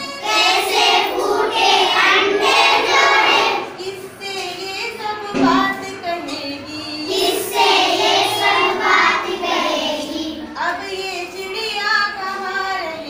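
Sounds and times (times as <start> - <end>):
children singing in unison: 0.0 - 4.2, 5.4 - 10.7.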